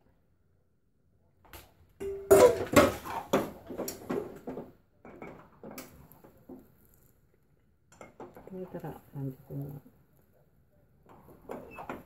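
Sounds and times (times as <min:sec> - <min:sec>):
kitchen utensils clattering: 0:02.0 - 0:05.9.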